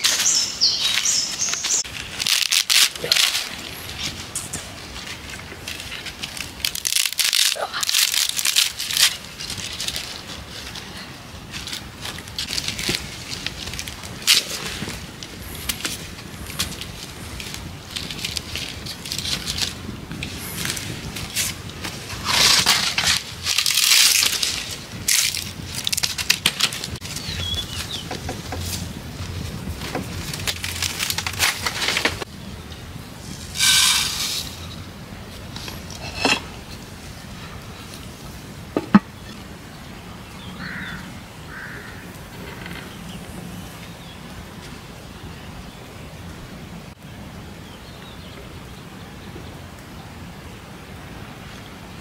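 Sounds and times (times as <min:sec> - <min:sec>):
sticks and straw rustling: 0:00.0 - 0:39.7
outdoor background: 0:00.0 - 0:52.0.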